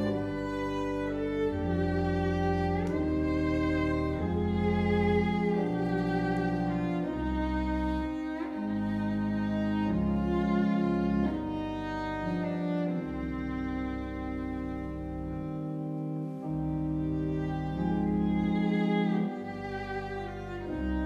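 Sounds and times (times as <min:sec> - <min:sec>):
church organ chords: 0:00.0 - 0:21.0
violin melody: 0:00.0 - 0:21.0.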